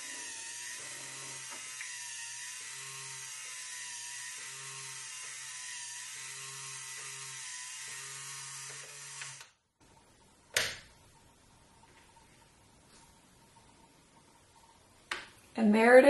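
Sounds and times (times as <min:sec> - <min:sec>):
electric motor whining: 0:00.0 - 0:09.6.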